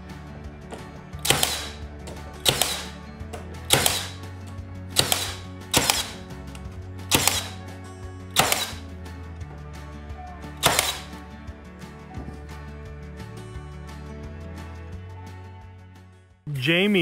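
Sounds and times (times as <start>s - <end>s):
soft background music: 0.0s - 17.0s
nail gun firing: 1.2s - 3.0s, 3.7s - 4.3s, 4.9s - 7.7s, 8.3s - 8.8s, 10.6s - 11.2s.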